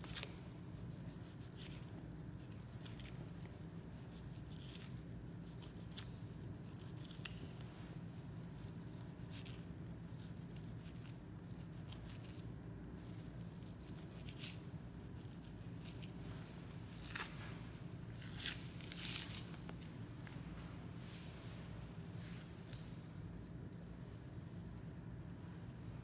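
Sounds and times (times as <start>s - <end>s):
knife slicing and tearing fat: 0.0s - 7.6s, 16.9s - 19.5s
steady low hum: 0.0s - 26.0s.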